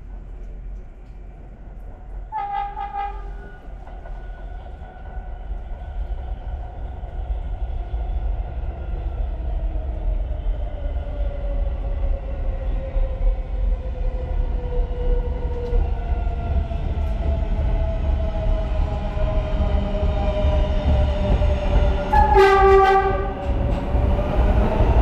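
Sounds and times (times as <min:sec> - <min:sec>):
train low rumble: 0:00.0 - 0:25.0
train horn blast: 0:02.3 - 0:03.4, 0:22.1 - 0:23.4.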